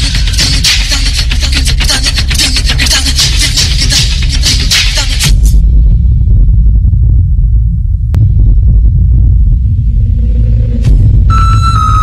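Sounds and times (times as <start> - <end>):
dense fast-beat dance music: 0.0 - 5.6.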